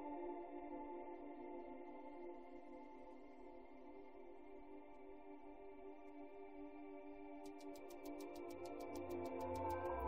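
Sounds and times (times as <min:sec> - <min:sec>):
synthesizer pad chords: 0:00.0 - 0:10.0.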